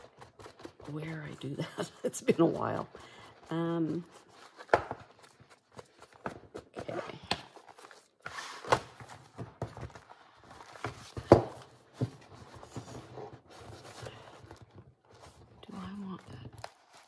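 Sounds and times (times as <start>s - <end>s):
paper pages rustling: 2.2s - 17.0s
book thumping on table: 11.0s - 12.2s.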